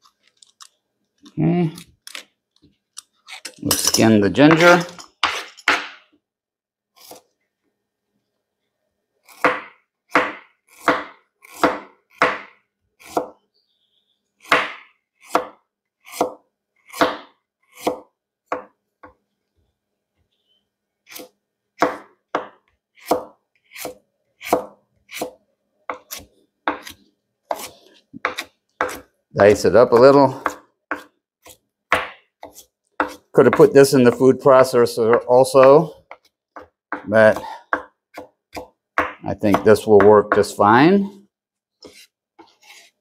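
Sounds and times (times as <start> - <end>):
knife chopping on cutting board: 9.4 - 13.4, 14.5 - 18.7, 21.1 - 29.1, 30.0 - 34.2, 35.1 - 40.6.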